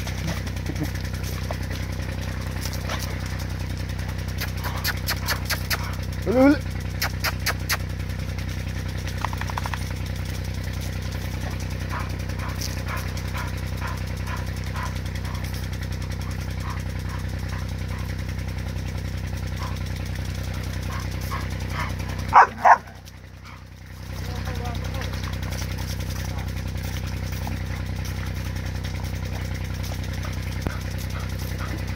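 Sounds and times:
low machine hum: 0.0s - 31.9s
dog barking: 11.9s - 15.5s, 16.2s - 18.1s, 20.9s - 23.6s.

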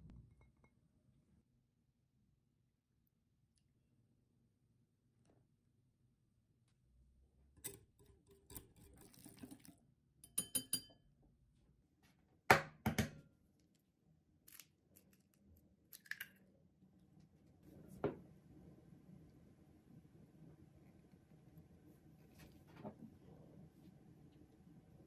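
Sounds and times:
glass bowls clinking: 10.2s - 11.0s
egg cracked against glass bowl: 15.9s - 16.4s.

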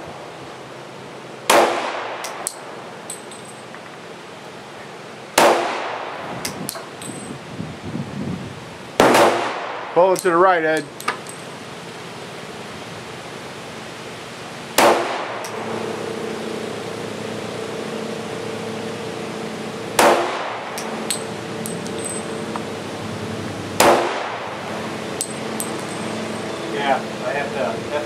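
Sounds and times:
pistol shots: 1.5s - 2.5s, 5.4s - 6.2s, 9.0s - 9.9s, 14.8s - 15.6s, 20.0s - 21.2s, 23.8s - 24.5s.

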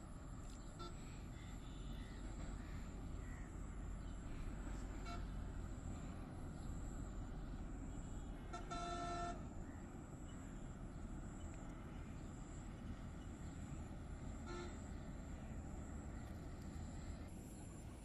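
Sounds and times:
outdoor background hiss: 0.0s - 18.0s
distant horn toot: 0.7s - 2.1s, 4.9s - 5.4s, 8.4s - 9.5s, 14.4s - 15.0s.

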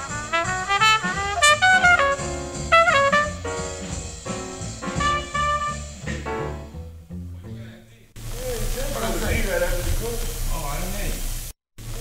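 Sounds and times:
bebop jazz band playing: 0.0s - 7.8s.

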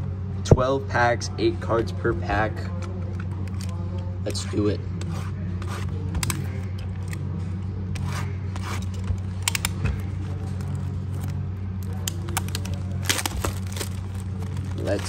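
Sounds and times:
steady low hum: 0.0s - 15.0s
cardboard and wrapping rustling: 8.0s - 15.0s.

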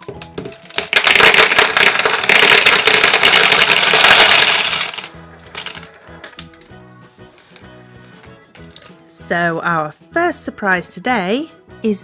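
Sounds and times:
gumballs clattering into plastic tub: 0.0s - 6.7s.

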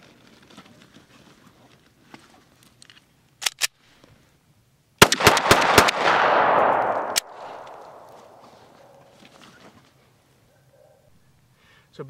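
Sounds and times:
sharp clicks: 5.0s - 8.4s
handgun shots: 5.0s - 9.0s.

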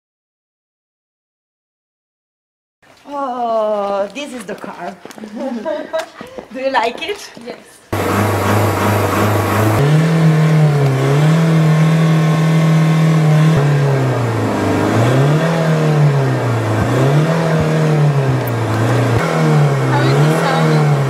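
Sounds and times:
car engine revving: 7.9s - 21.0s.

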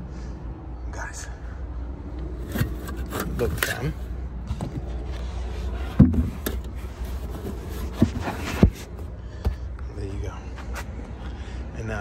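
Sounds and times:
steady low rumble: 0.0s - 12.0s
knocks and thumps of handling: 4.4s - 9.6s.

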